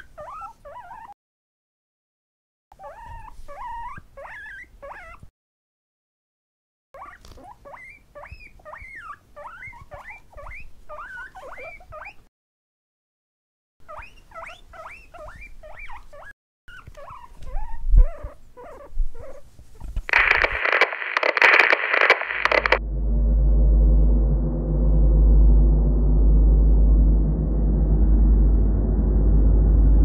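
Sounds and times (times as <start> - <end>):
guinea pigs squeaking: 0.0 - 1.2, 2.8 - 5.3, 7.0 - 12.3, 13.8 - 22.8
loud noisy rush: 20.1 - 22.8.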